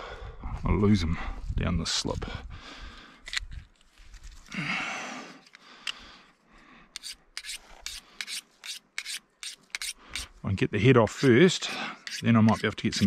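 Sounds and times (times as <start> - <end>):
knife blade rasping on sharpener: 7.0 - 10.3, 12.0 - 13.0.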